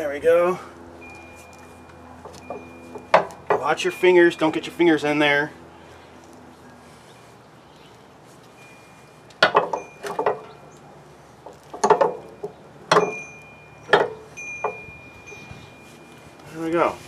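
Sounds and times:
metal clanks with ringing: 0:09.4 - 0:10.8, 0:11.8 - 0:16.8.

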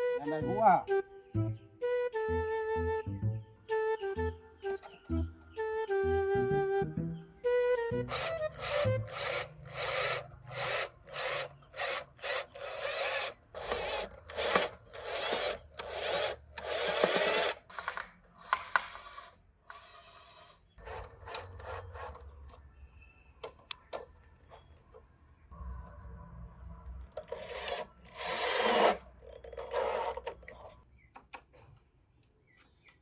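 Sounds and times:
cordless drill boring plastic: 0:08.1 - 0:22.3, 0:27.2 - 0:30.6.

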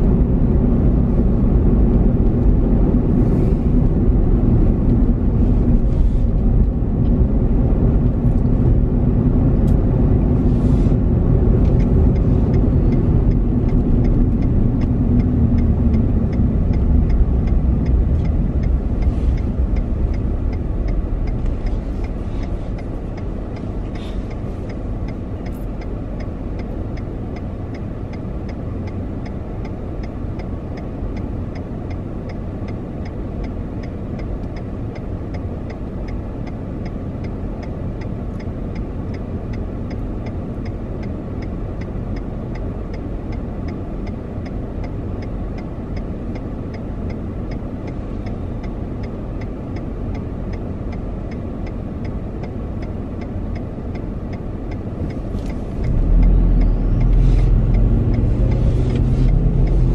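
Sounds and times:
turn signal ticking: 0:00.0 - 0:59.9.

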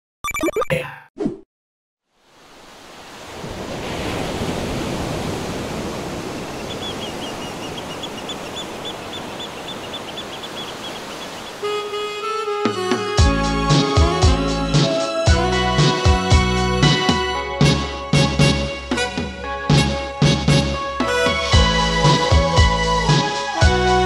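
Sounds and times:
sea surf washing: 0:02.3 - 0:12.9
high chirps: 0:06.6 - 0:12.0
music: 0:11.6 - 0:24.0.

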